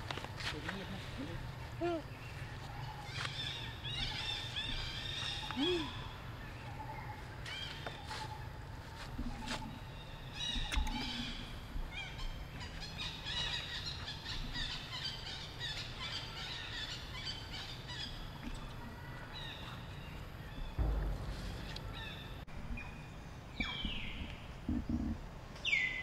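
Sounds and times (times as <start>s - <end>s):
low steady rumble: 18.1s - 25.6s.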